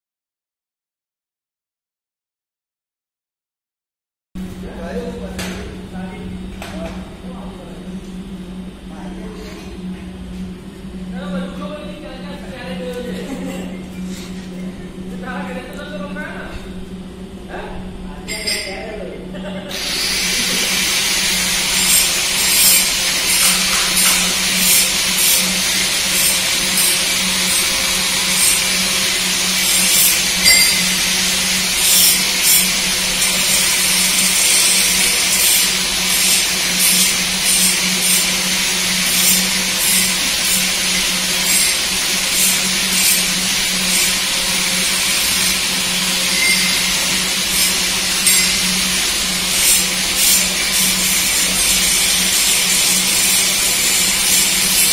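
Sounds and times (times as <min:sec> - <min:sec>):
hydraulic motor and pump hum: 0:04.4 - 0:54.9
hydraulic hiss: 0:19.7 - 0:54.9.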